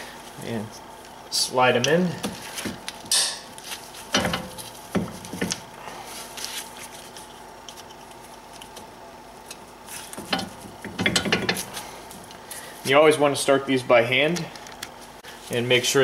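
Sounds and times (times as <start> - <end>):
metal pins clicking and knocking: 10.2 - 11.7.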